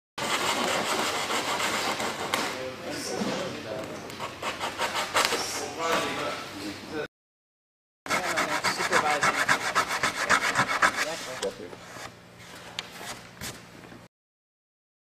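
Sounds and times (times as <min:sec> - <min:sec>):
hand sanding strokes: 0:00.2 - 0:02.4, 0:04.2 - 0:05.7, 0:08.1 - 0:12.1.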